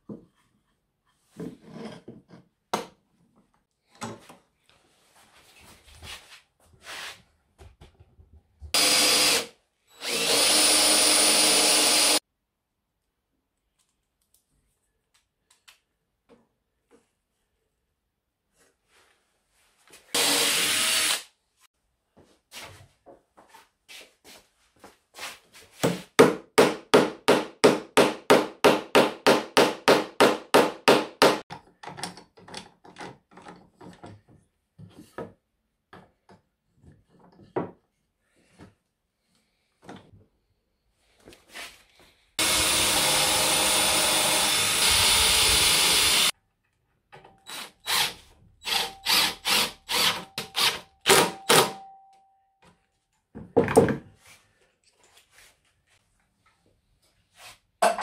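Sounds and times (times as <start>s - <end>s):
drill boring into plywood: 8.8s - 12.2s, 20.2s - 21.3s, 42.4s - 46.3s, 47.4s - 51.7s.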